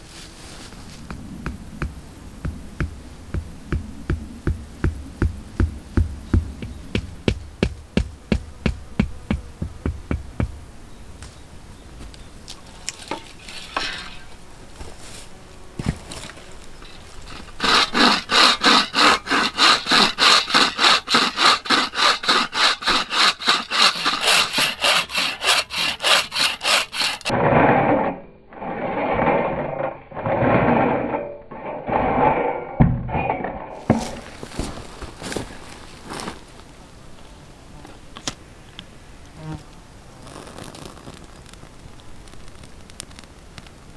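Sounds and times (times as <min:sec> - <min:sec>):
bow saw cutting branch: 0:12.8 - 0:27.4.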